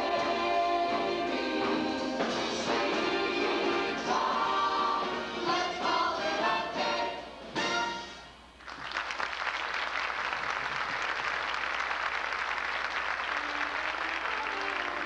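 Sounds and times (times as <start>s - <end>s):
audience applause: 8.6s - 15.0s
soft orchestral music: 13.3s - 15.0s.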